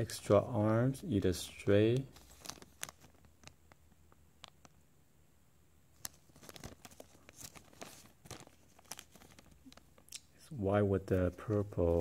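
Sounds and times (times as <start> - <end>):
plastic bag crinkling: 2.0 - 4.8, 6.0 - 10.2.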